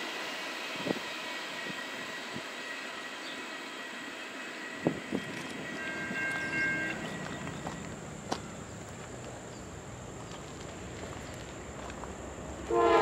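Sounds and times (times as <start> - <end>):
distant locomotive air horn: 5.7 - 7.2, 12.7 - 13.0.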